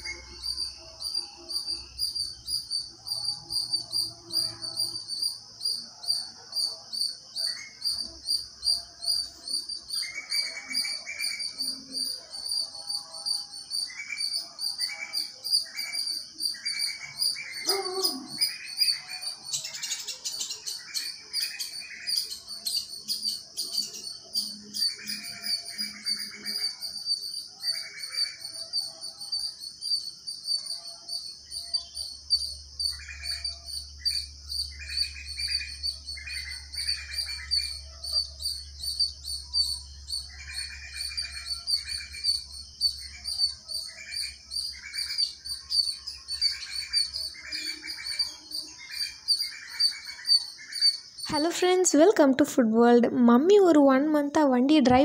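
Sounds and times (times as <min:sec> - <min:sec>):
birds chirping: 0:13.8 - 0:29.2, 0:30.0 - 0:52.4.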